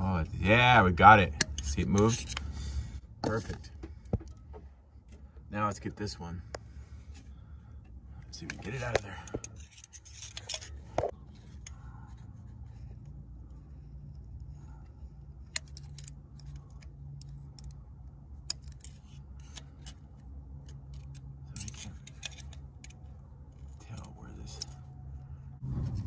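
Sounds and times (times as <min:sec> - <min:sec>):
low steady hum: 0:00.0 - 0:26.0
metal pick scraping and clicking: 0:01.3 - 0:02.5, 0:08.4 - 0:11.8, 0:18.4 - 0:24.8.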